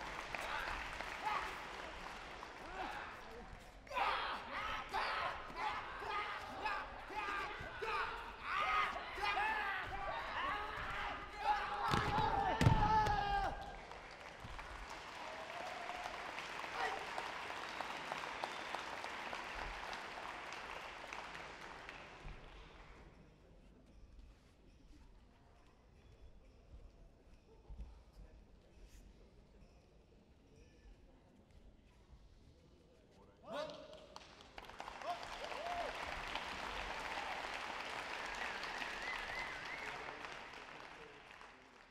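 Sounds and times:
audience applauding: 0.0s - 23.0s, 34.2s - 41.9s.

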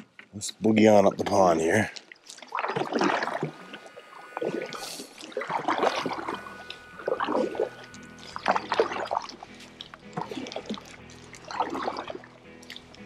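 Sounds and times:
paddle strokes in water: 1.1s - 13.0s
background music: 5.9s - 13.0s.

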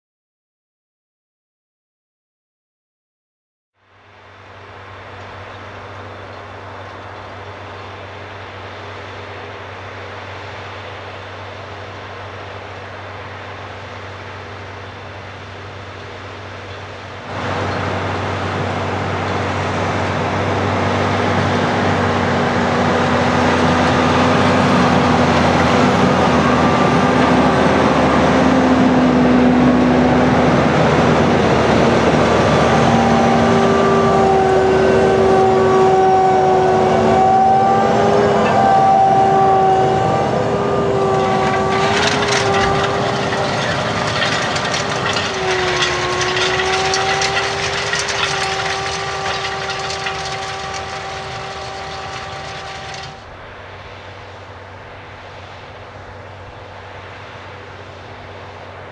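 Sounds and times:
tractor diesel engine under load: 4.6s - 54.8s
high whining tones: 32.9s - 53.3s.

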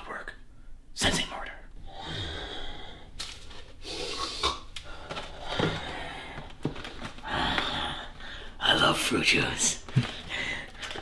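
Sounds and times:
packaged box rustling: 5.0s - 7.3s.

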